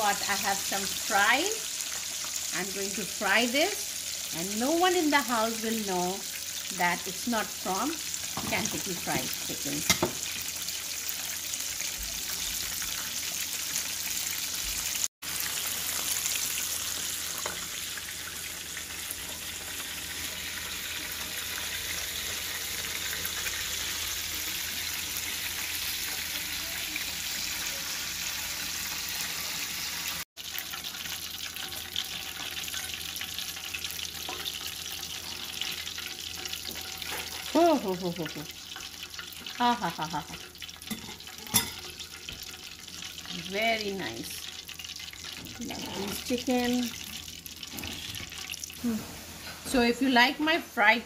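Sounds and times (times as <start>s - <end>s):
chicken deep-frying in oil: 0.0s - 51.0s.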